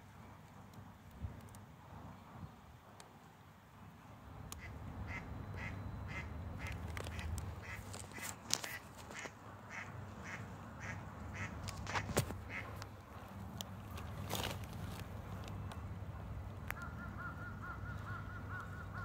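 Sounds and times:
ducks quacking: 4.6s - 12.8s, 16.8s - 19.0s.

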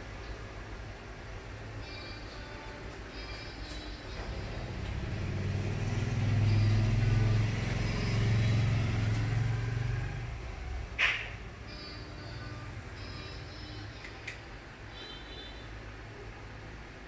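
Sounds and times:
motor vehicle passing: 4.1s - 13.4s.

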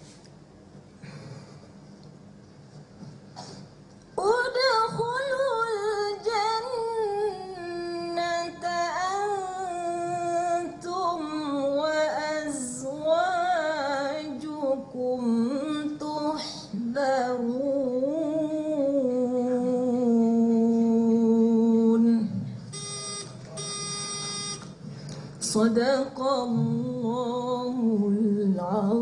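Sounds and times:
woman reciting melodically: 4.1s - 22.7s, 25.4s - 29.0s.

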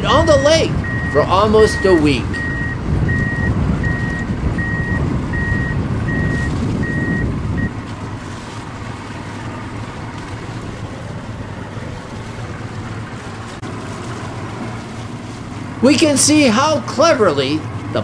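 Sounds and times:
diesel engine running: 0.0s - 18.0s
reversing alarm beeping: 0.8s - 7.8s.

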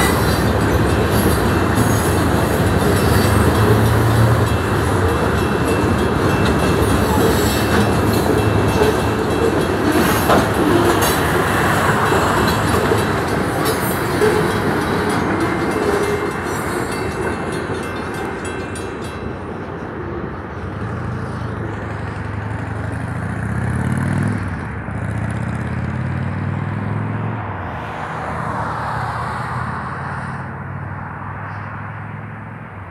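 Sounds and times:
train wheel clicks: 0.0s - 20.0s
freight train rumbling past: 0.0s - 32.9s
cars driving past: 20.8s - 32.9s.

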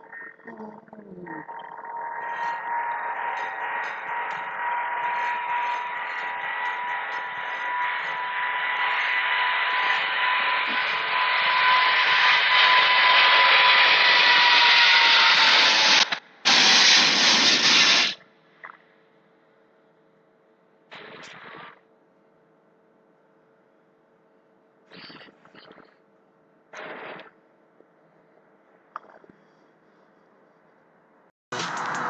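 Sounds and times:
jet engines at takeoff: 2.1s - 18.2s.

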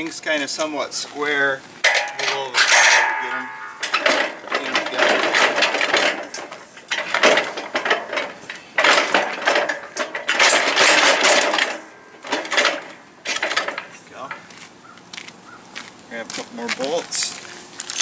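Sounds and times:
metallic rattling and clattering: 1.8s - 14.6s.

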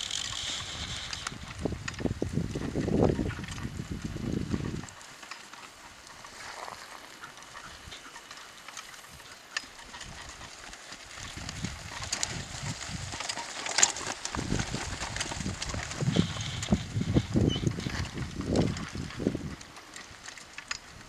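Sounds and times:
cart wheels rolling and knocking: 0.0s - 21.0s
horse hoofbeats: 0.0s - 21.0s.

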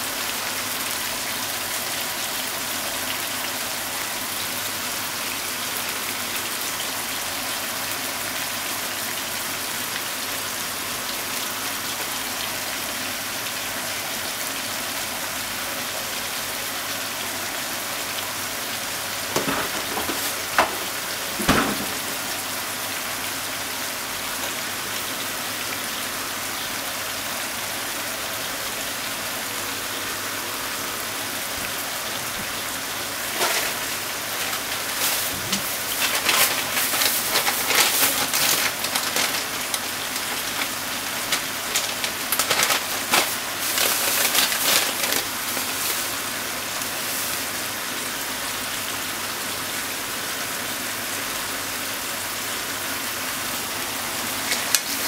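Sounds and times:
food sizzling in a frying pan: 15.2s - 29.4s, 31.0s - 49.4s, 52.6s - 55.0s
oil crackling and spitting: 33.2s - 46.3s.

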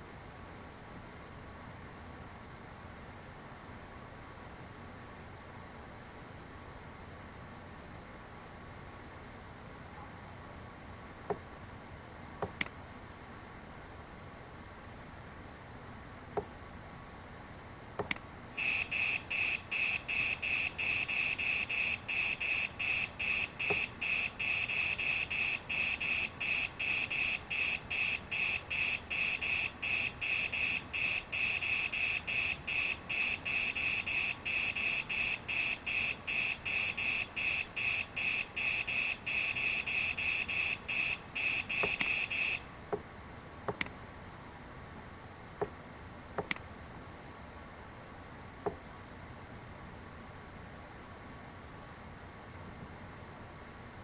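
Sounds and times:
electronic chirping: 18.6s - 42.6s
mouse clicks: 41.8s - 42.2s, 43.7s - 43.9s, 46.4s - 46.6s.

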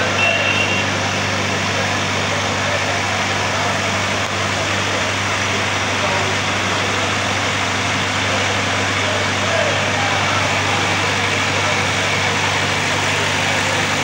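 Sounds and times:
crowd chatter: 0.0s - 14.0s
engine idling: 0.0s - 14.0s.

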